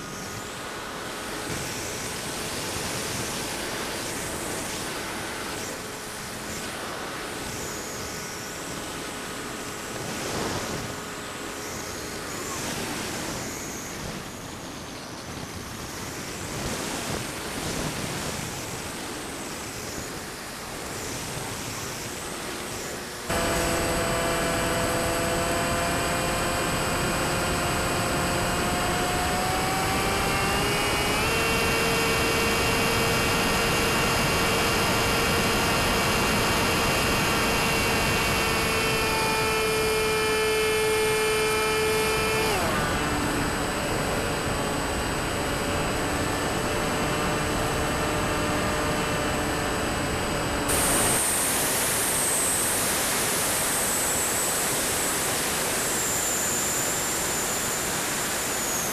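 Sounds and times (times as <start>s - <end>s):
electric motor and propeller whining: 0.0s - 58.9s
wind hiss: 50.7s - 58.9s.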